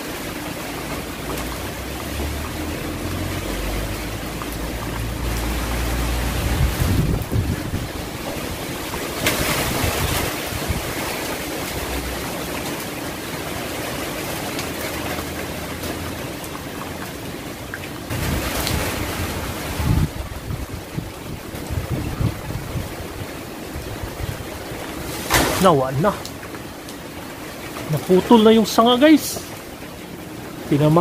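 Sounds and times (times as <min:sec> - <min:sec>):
leaves and branches thrashing: 0:00.0 - 0:17.4, 0:18.0 - 0:31.0
strong wind gusting through trees: 0:00.0 - 0:31.0
wind buffeting microphone: 0:03.0 - 0:12.6, 0:18.1 - 0:27.8.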